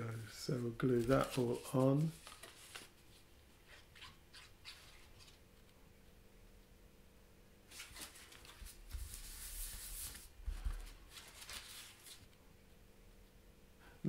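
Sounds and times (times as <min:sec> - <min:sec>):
paper and card rustling: 0:00.8 - 0:05.4, 0:07.7 - 0:12.4.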